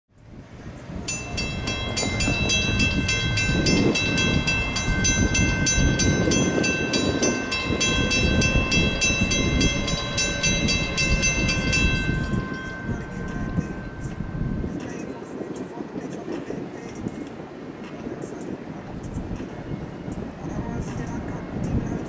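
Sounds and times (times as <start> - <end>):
train rumble: 0.2 - 22.0
railroad warning bell ringing: 1.0 - 15.8.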